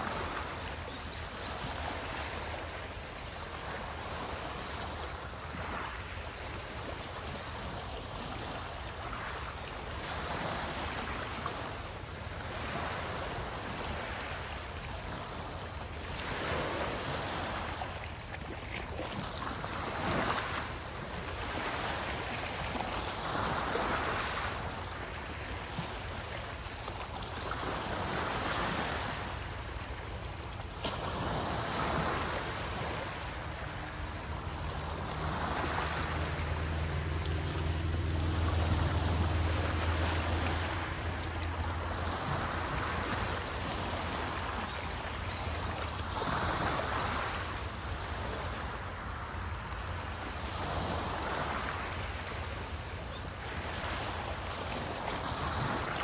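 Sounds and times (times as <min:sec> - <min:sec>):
waves breaking on shore: 0:00.0 - 0:56.0
distant engine hum: 0:27.6 - 0:56.0.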